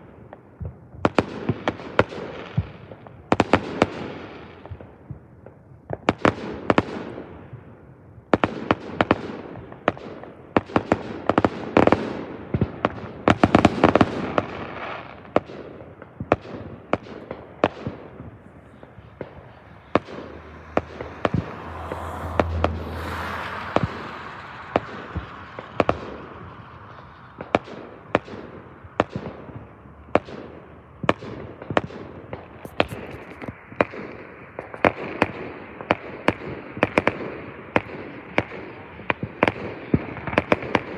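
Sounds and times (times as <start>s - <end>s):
fireworks bursting with crackling: 0.3s - 40.9s.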